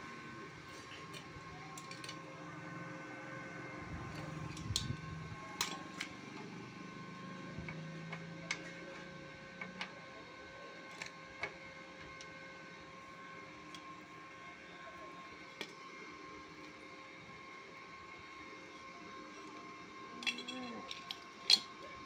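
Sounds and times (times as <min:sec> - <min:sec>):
welding machine whine: 0:00.0 - 0:22.0.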